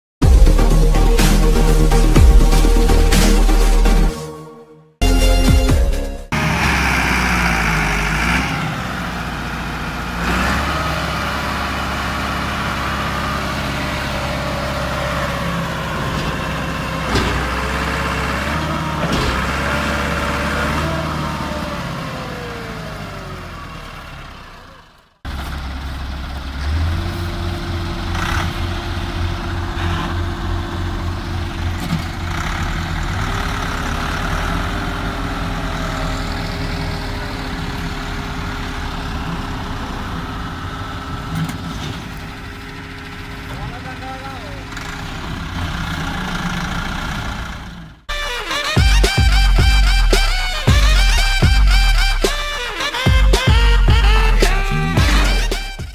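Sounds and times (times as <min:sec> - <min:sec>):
tractor diesel engine: 0:00.2 - 0:55.9.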